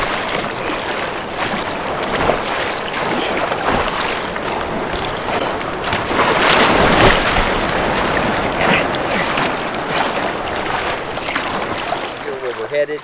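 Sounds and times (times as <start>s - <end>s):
surf breaking: 0.0s - 13.0s
whitewater rushing around kayak: 0.0s - 13.0s.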